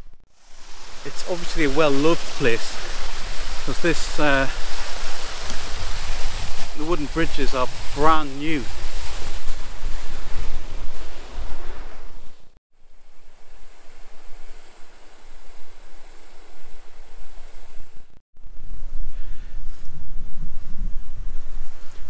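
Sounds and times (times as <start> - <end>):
wind buffeting microphone: 0.0 - 12.6, 13.5 - 22.0
stream and waterfall rushing: 0.3 - 9.3.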